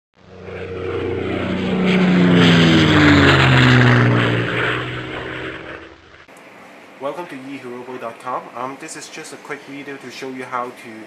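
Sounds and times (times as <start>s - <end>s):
propeller airplane flying by: 0.2s - 6.3s.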